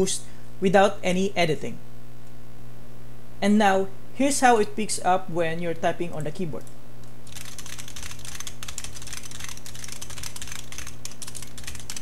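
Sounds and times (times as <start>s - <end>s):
steady low hum: 0.0s - 12.0s
fast keyboard typing: 6.2s - 12.0s.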